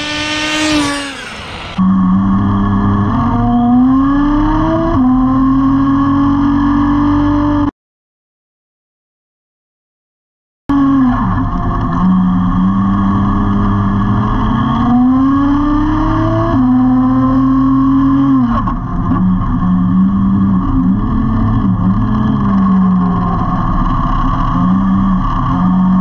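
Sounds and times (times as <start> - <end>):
rc truck nitro engine revving: 0.0 - 2.0.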